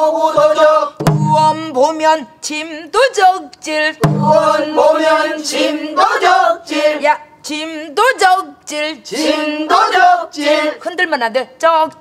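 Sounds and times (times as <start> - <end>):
people singing in unison: 0.0 - 10.8
barrel drum stroke: 0.4 - 1.7, 4.0 - 4.8.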